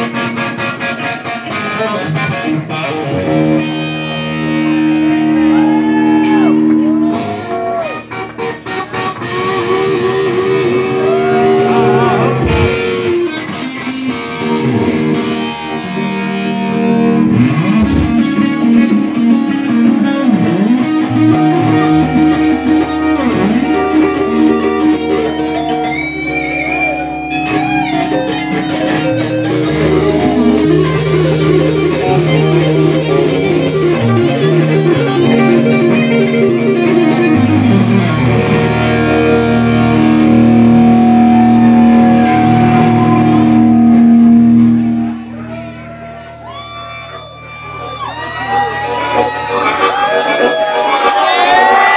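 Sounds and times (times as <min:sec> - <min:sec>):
distorted electric guitar: 0:00.0 - 0:51.9
deep bass: 0:10.6 - 0:13.6, 0:16.0 - 0:51.9
person singing: 0:10.9 - 0:13.1.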